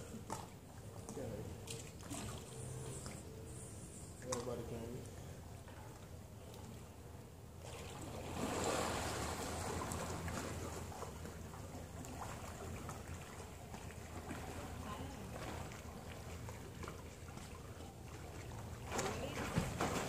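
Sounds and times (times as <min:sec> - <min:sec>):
swimmer splashing in pool: 0:07.6 - 0:20.0.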